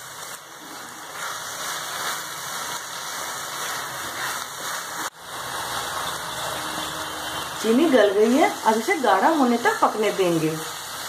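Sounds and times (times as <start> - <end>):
mixture sizzling in a pan: 0.0 - 11.0.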